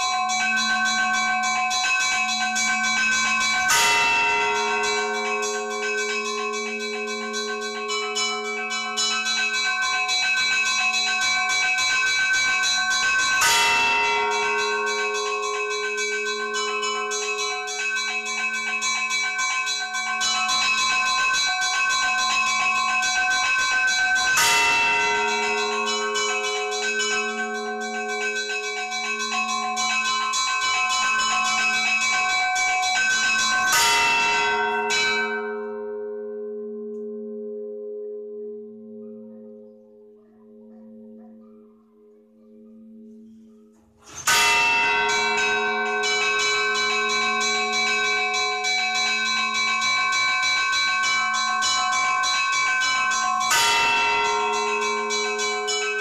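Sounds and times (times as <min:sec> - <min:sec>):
small church bells chiming: 0:00.0 - 0:56.0
big bell struck: 0:20.0 - 0:32.4.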